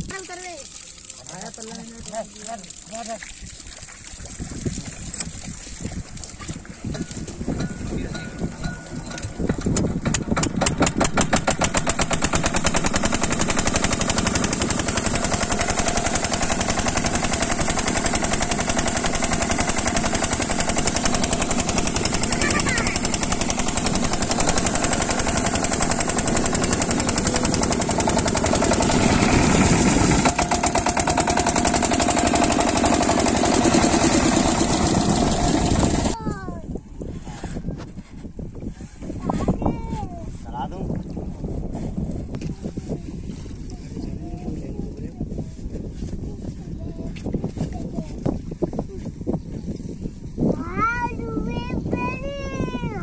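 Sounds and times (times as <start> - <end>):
diesel water pump engine running: 0.0 - 36.6.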